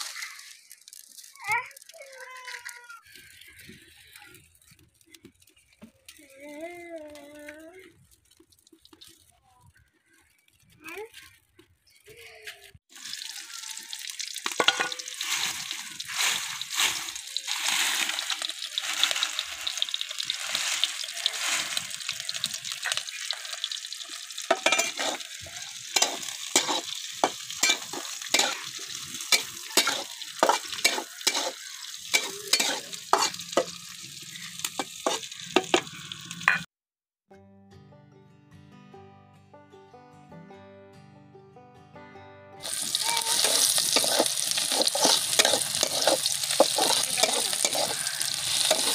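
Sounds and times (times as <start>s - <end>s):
onions sizzling in oil: 0.0s - 6.3s, 12.9s - 36.7s, 42.6s - 48.9s
steel spatula scraping pan: 24.5s - 33.8s, 42.6s - 48.9s.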